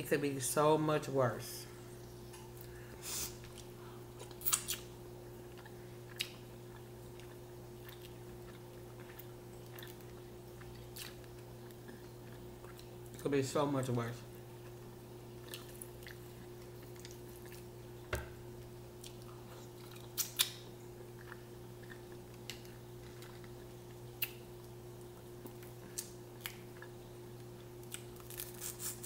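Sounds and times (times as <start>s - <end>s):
steady low hum: 0.0s - 29.0s
chewing: 3.4s - 13.2s, 14.6s - 17.8s, 19.0s - 24.4s.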